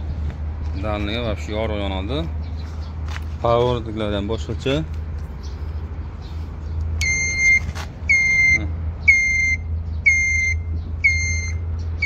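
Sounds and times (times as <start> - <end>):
short high beeps: 7.0 - 11.6.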